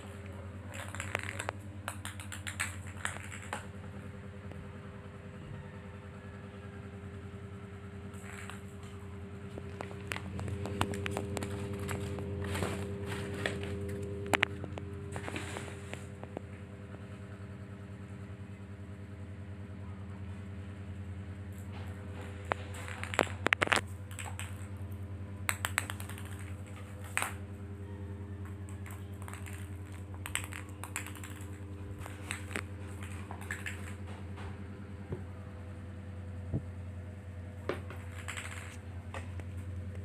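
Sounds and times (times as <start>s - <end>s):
low mechanical hum: 0.0s - 40.0s
ball tapping on tile floor: 0.7s - 3.8s, 8.1s - 16.5s, 22.5s - 24.7s, 25.5s - 27.4s, 28.4s - 34.5s, 37.7s - 39.5s.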